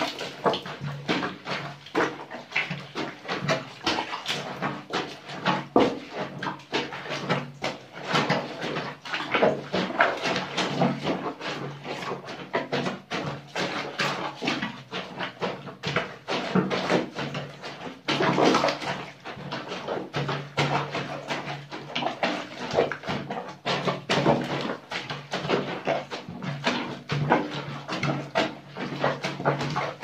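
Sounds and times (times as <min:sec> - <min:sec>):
feet squelching in soapy water: 0:00.0 - 0:30.0.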